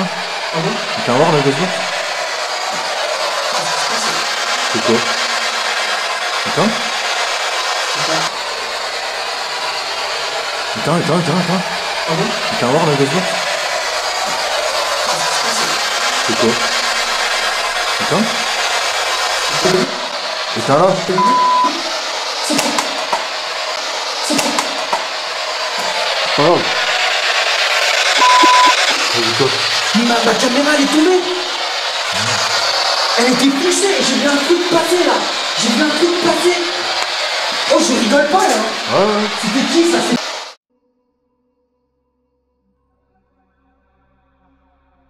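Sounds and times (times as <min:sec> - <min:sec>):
low voice-like sounds: 0:00.0 - 0:02.0, 0:02.8 - 0:05.2, 0:06.5 - 0:06.9, 0:08.0 - 0:08.3, 0:10.8 - 0:13.5, 0:14.2 - 0:17.0, 0:18.0 - 0:18.5, 0:26.3 - 0:26.8, 0:28.2 - 0:31.4, 0:32.1 - 0:32.6, 0:38.4 - 0:39.8
steady loud hiss: 0:00.0 - 0:40.6.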